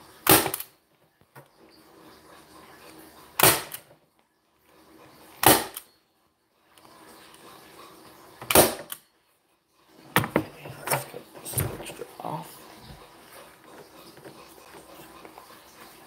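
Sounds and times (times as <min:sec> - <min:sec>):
staple gun firing: 0:00.3 - 0:00.7, 0:03.4 - 0:03.8, 0:08.5 - 0:09.0.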